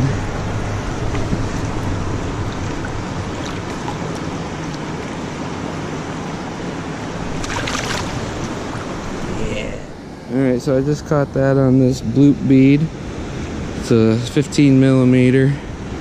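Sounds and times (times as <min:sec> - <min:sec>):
river water flowing: 0:00.0 - 0:10.8.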